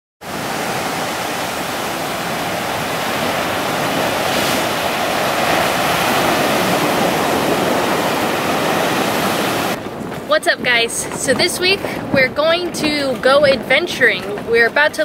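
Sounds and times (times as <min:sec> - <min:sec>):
surf washing against rocky shore: 0:00.2 - 0:15.0.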